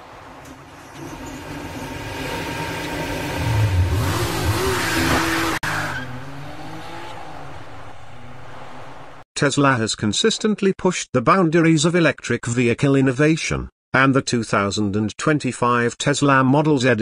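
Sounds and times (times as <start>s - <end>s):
tyres skidding: 0.0s - 9.2s
car engine revving: 0.4s - 9.2s.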